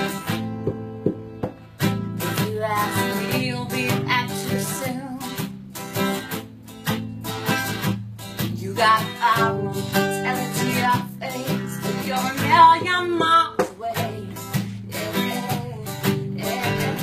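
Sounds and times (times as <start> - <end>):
strummed acoustic guitar: 0.0 - 17.0
woman singing: 2.1 - 5.7, 8.4 - 17.0.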